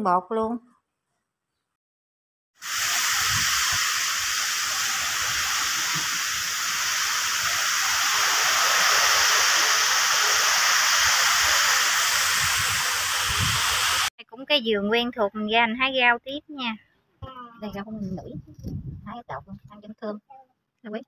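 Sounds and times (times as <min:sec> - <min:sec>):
steady rain: 0:02.6 - 0:14.1.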